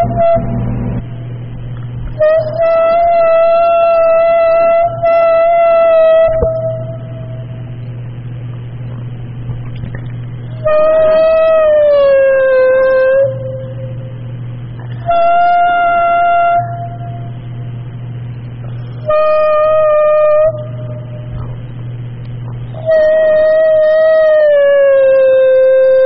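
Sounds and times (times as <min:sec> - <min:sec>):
steady low hum: 0:00.0 - 0:26.0
sustained pitched tones: 0:00.0 - 0:26.0.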